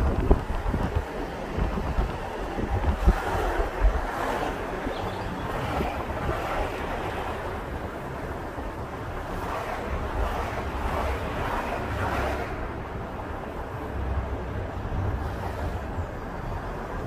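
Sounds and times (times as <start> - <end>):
steady rushing outdoor noise: 0.0 - 17.0
wind buffeting microphone: 0.0 - 17.0.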